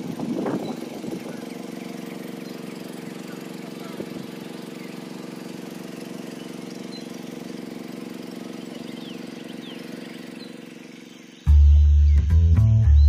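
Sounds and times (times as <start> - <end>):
boat motor running: 0.0 - 13.0.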